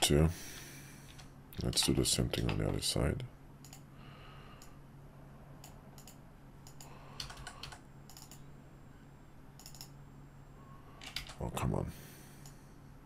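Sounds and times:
low steady hum: 0.0s - 13.0s
keyboard and mouse clicking: 1.1s - 2.8s, 3.6s - 3.8s, 5.6s - 8.4s, 9.6s - 9.9s, 11.0s - 11.4s.

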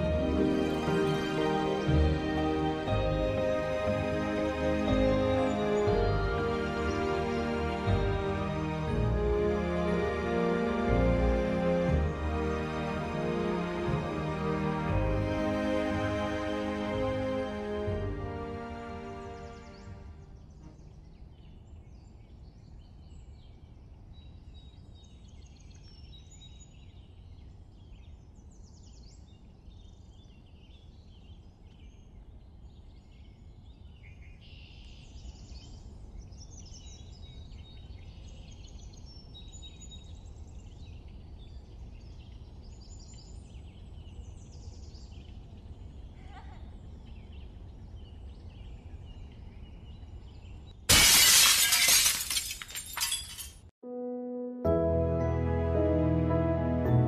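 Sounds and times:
birds chirping and twittering: 0.0s - 9.4s, 15.0s - 50.9s.

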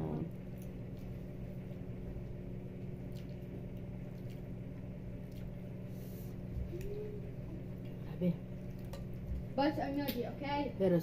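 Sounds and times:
person chewing: 0.5s - 7.0s.

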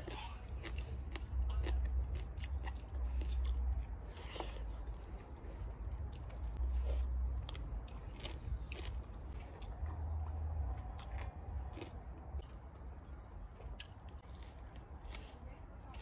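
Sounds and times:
food crunches: 0.0s - 3.6s, 7.4s - 9.7s, 11.0s - 14.8s
low rumble: 0.4s - 15.1s
chewing and wet mouth clicks: 7.4s - 14.8s.

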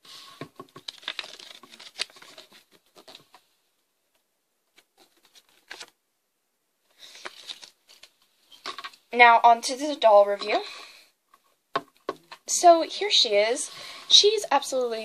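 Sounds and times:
paper booklet crinkling: 0.7s - 3.4s, 4.7s - 6.0s, 7.0s - 8.7s.

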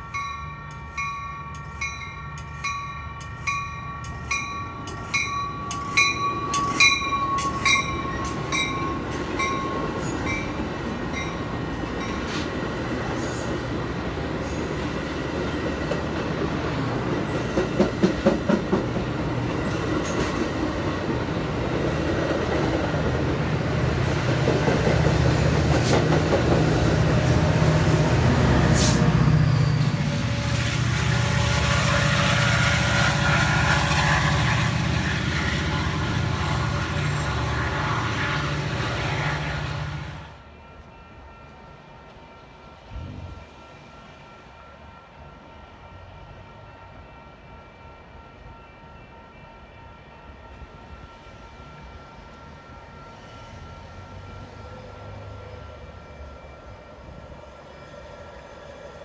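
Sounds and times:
diesel locomotive engine rumble: 0.0s - 59.0s
train wheels on rails: 0.0s - 59.0s.

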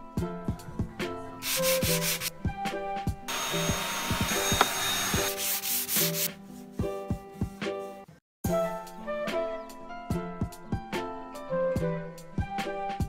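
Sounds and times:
music with steady beat: 0.0s - 13.0s
vacuum cleaner running: 3.3s - 5.3s.

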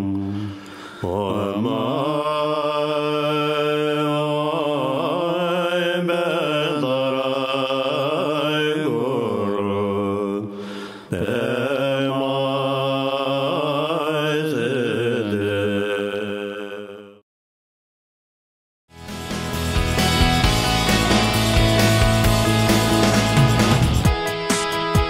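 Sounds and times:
person chanting melodically: 0.0s - 10.5s, 11.1s - 17.2s.

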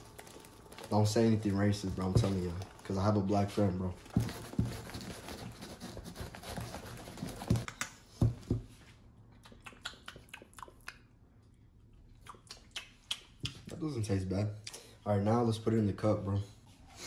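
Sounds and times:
mouth clicks and smacking: 7.7s - 8.1s, 9.3s - 11.3s, 12.0s - 13.8s.

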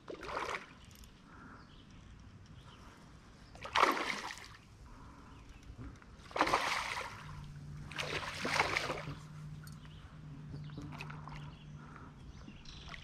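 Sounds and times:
faint low hum: 1.0s - 13.0s
stream trickling: 3.5s - 4.8s, 5.9s - 13.0s
water splashing: 3.6s - 4.6s, 6.2s - 9.4s.

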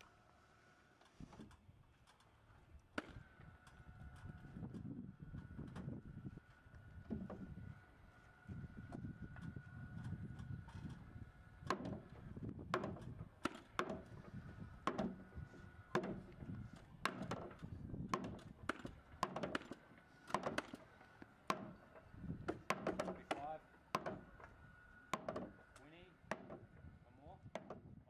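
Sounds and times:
hammer knocking on wood: 11.7s - 12.1s, 12.7s - 14.2s, 14.8s - 15.3s, 15.9s - 20.8s, 21.5s - 21.8s, 22.4s - 24.3s, 25.1s - 25.6s, 26.3s - 26.7s, 27.5s - 27.9s.

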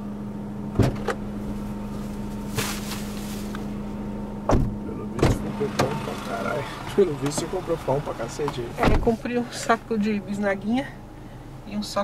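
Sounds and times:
car engine idling: 0.0s - 12.0s
car doors knocking: 0.7s - 1.2s, 4.4s - 6.1s, 8.4s - 9.2s.

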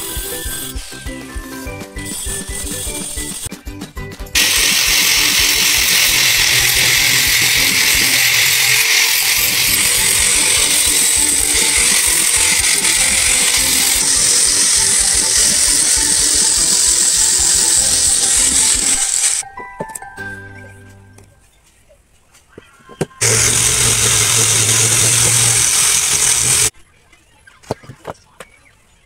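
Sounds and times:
angle grinder cutting tile: 0.0s - 3.5s, 4.4s - 19.4s, 23.2s - 26.7s.

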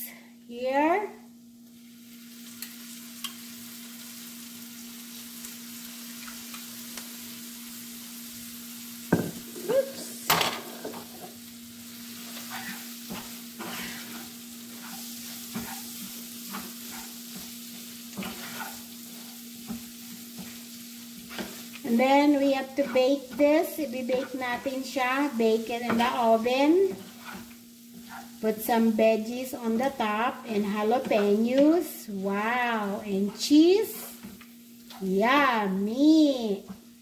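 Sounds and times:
pork sizzling in frying pan: 1.3s - 37.0s
wooden spatula scraping pan: 12.2s - 20.6s, 21.2s - 28.9s, 29.7s - 31.9s.

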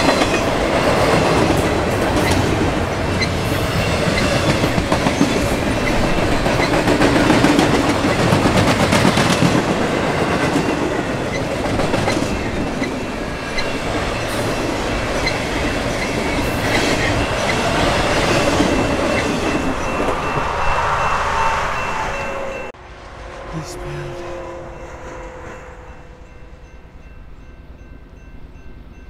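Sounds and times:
train wheels clickety-clack: 0.0s - 20.6s.

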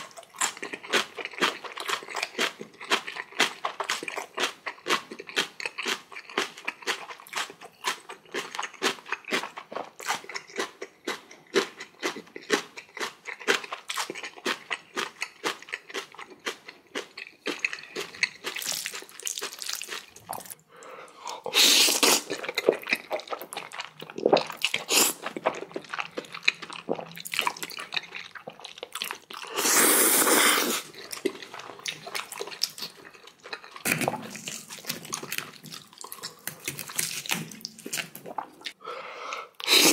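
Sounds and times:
wet chewing and crunching: 0.0s - 20.6s, 21.2s - 38.8s
loud noodle slurps: 21.5s - 22.4s, 29.4s - 31.0s, 39.6s - 39.9s.

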